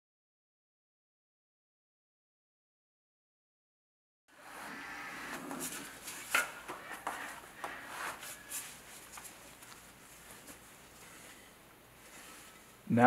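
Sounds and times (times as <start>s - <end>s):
gloved hands rustling: 5.5s - 12.8s.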